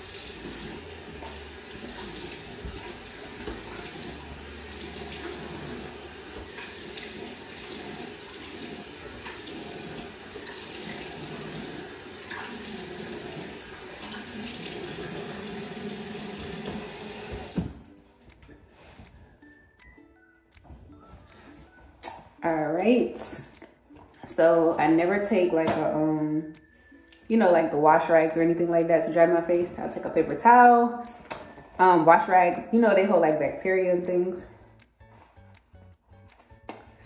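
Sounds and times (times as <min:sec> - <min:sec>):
sink tap running: 0:00.0 - 0:17.8.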